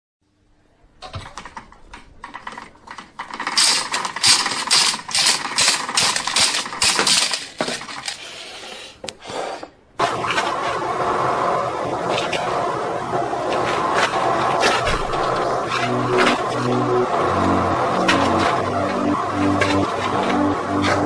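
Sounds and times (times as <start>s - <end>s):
pasta machine rollers clicking: 1.0s - 8.8s, 10.0s - 21.0s
steady noise: 12.6s - 21.0s.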